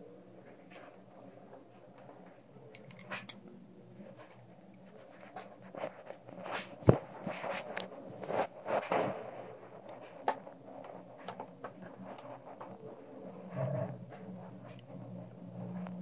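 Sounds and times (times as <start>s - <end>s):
plastic tubing scraping and rubbing: 5.0s - 16.0s.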